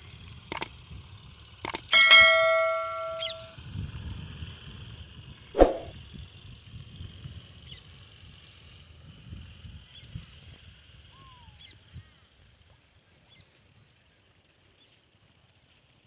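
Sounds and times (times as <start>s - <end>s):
bright bell ding: 1.8s - 3.6s
sharp thump: 5.6s - 5.9s.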